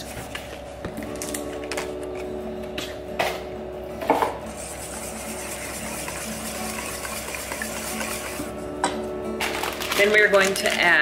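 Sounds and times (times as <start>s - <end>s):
whisk scraping metal bowl: 4.5s - 8.5s.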